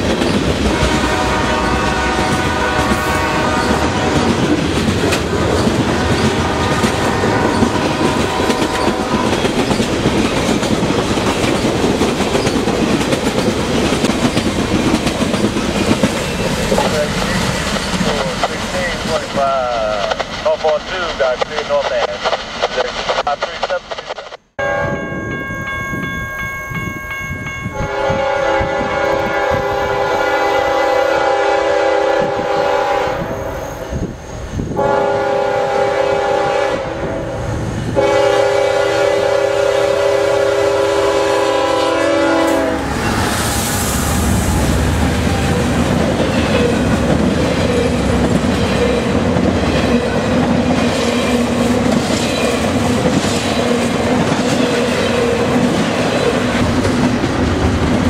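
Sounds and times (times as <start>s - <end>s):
train rumbling past: 0.0s - 58.0s
train air horn blasts: 0.6s - 4.5s, 5.9s - 9.4s, 27.7s - 33.4s, 34.8s - 46.8s
wheels clacking over rail joints: 3.6s - 22.9s.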